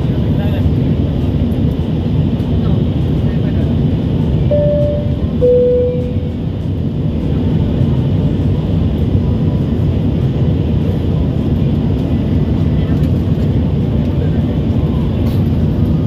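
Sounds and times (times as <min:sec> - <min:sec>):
jet cabin engine noise: 0:00.0 - 0:16.0
two-note falling cabin chime: 0:04.5 - 0:06.2.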